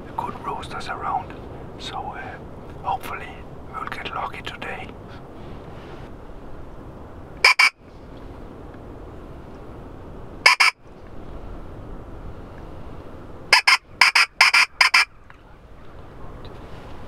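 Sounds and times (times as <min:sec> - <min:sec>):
pheasant call whistle notes: 0:07.4 - 0:07.8, 0:10.5 - 0:10.8, 0:13.5 - 0:15.1.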